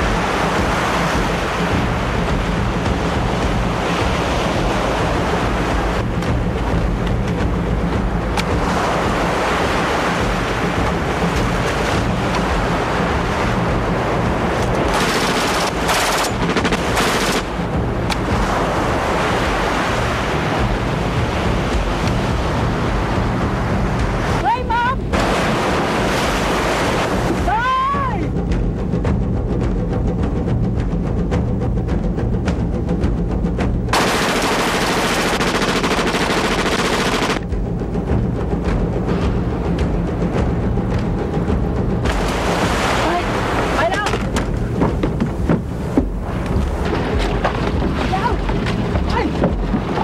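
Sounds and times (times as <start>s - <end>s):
wind: 0.0s - 50.0s
surf breaking on a beach: 8.4s - 28.2s, 42.0s - 44.4s.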